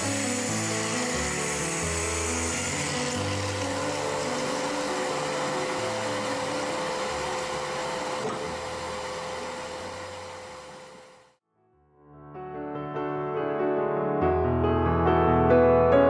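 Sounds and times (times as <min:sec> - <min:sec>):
machine motor humming: 0:00.0 - 0:11.4.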